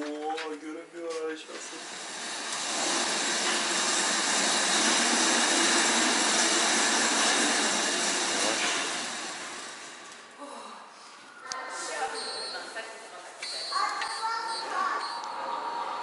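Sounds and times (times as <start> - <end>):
whirring rush of pedal-driven slats: 1.6 - 10.4.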